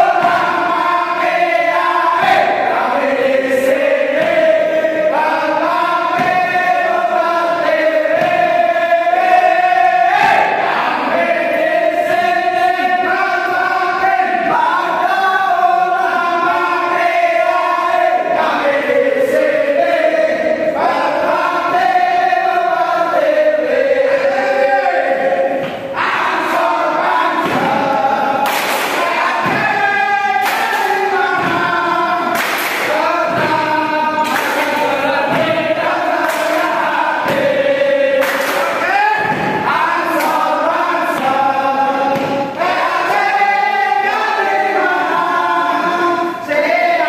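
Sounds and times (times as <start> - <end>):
men singing and chanting in unison: 0.0 - 47.0
claps or stamps: 3.7 - 4.6, 6.1 - 6.9, 8.1 - 8.5, 25.6 - 41.5, 42.1 - 43.3.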